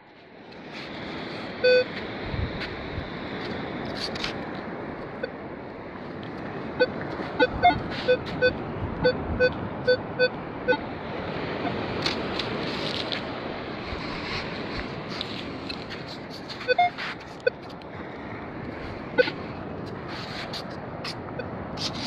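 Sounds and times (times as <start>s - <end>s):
metal detector beeps: 1.6s - 1.9s, 6.8s - 10.8s, 16.6s - 17.7s, 19.2s - 19.4s.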